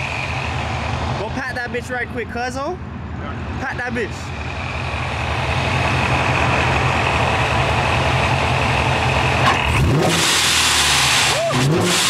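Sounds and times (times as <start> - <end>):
engine idling and revving: 0.0 - 12.0.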